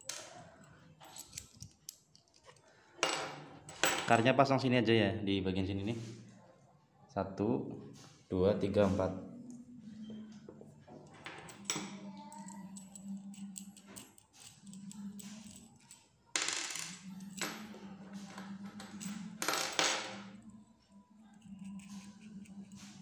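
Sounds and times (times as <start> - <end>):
metal parts clinking on wooden table: 0.0 - 4.2, 11.1 - 20.4, 21.4 - 23.0.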